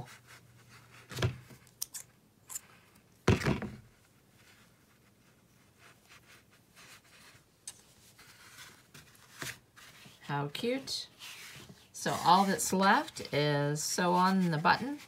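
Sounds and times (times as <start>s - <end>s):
yarn and crochet hook rustling: 3.9s - 15.0s.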